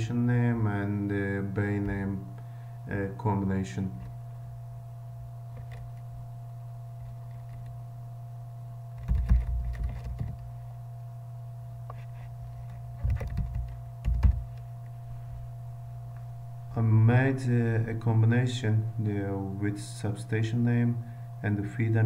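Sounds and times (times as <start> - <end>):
low electrical hum: 0.0 - 22.0
computer keyboard typing: 9.0 - 10.4, 13.0 - 14.6.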